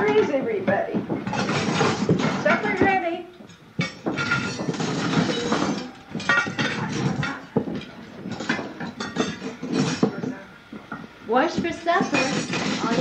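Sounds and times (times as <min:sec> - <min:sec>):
plates clinking on table: 0:01.2 - 0:10.4.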